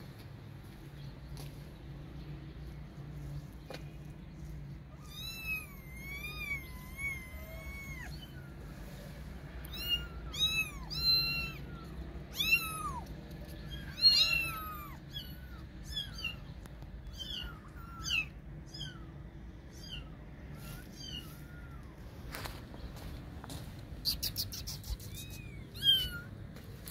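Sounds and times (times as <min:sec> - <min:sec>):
kitten mewing: 0:24.1 - 0:26.3.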